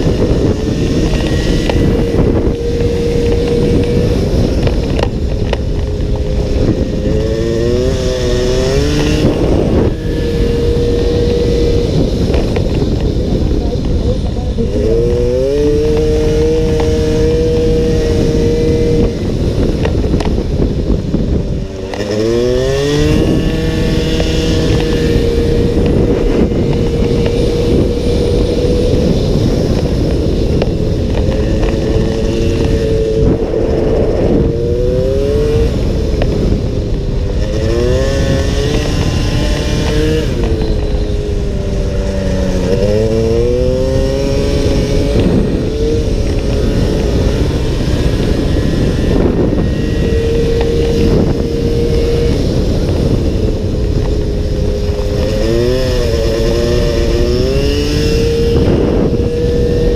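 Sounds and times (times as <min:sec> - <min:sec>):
racing motorcycle engine: 0:00.0 - 0:59.9
wind rushing over microphone: 0:00.0 - 0:59.9.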